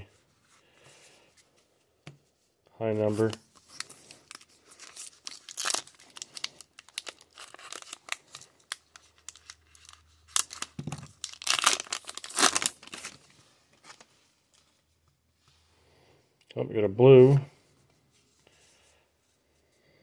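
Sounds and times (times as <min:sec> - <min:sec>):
card pack wrapper tearing and crinkling: 0:03.1 - 0:14.0.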